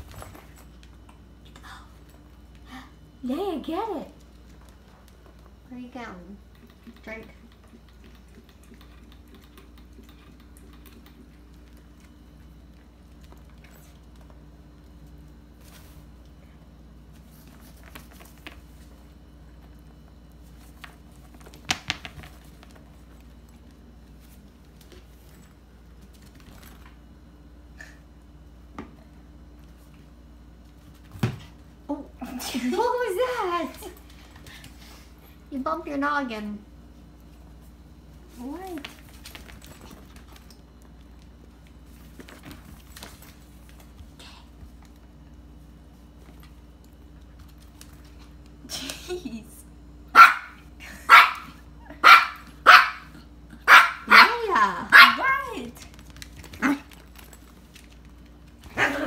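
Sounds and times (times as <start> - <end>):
low room hum: 0.0 - 59.0
claws clicking on hard floor: 20.5 - 27.0, 55.8 - 58.8.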